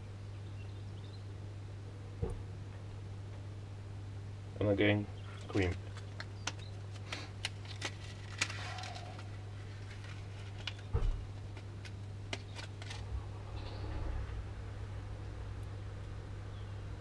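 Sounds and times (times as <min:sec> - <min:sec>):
steady low hum: 0:00.0 - 0:17.0
hands handling small parts: 0:05.4 - 0:13.1
dull thump: 0:10.9 - 0:11.3.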